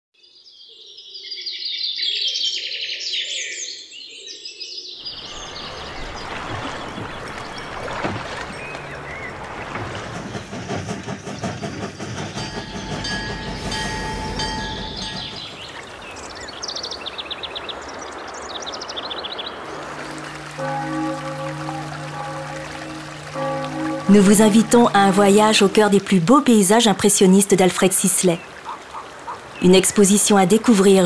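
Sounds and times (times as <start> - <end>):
birds chirping: 5.0 - 31.0
train rumbling past: 5.2 - 17.2, 19.5 - 27.6
wheels rattling on rails: 5.4 - 16.8, 19.6 - 27.5
thin steady tones: 19.7 - 27.1.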